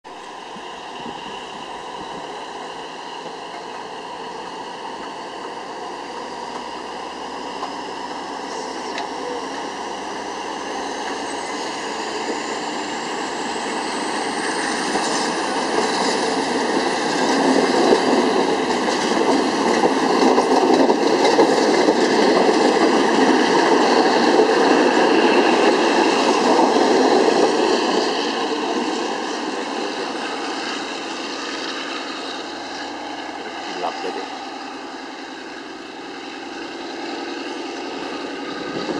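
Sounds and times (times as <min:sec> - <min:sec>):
train wheels rumbling on rails: 0:00.1 - 0:38.9.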